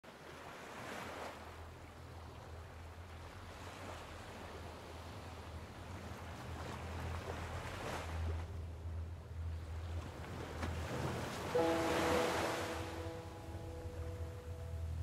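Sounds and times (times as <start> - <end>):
steady low rumble: 5.3 - 11.8, 12.8 - 15.0
small waves washing onto sand: 9.9 - 13.6.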